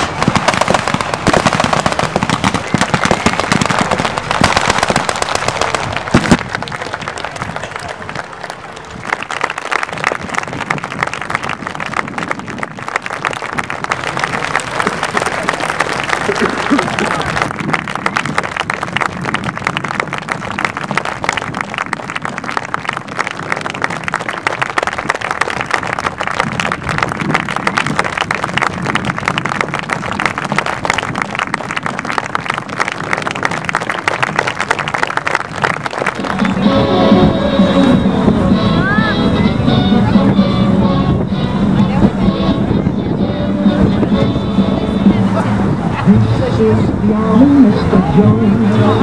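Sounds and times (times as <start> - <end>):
rapid overlapping gunfire: 0.0 - 6.4
crowd applauding: 0.0 - 37.0.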